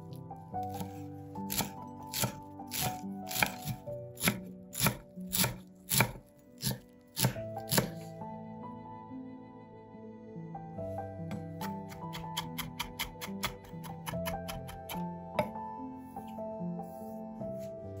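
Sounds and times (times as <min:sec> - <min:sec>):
knife chopping on wooden board: 0:00.6 - 0:08.0.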